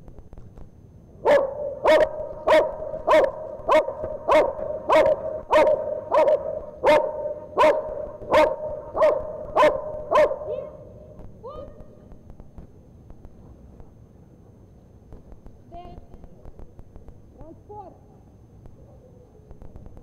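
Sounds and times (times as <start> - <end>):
dog barking: 1.2 - 10.8.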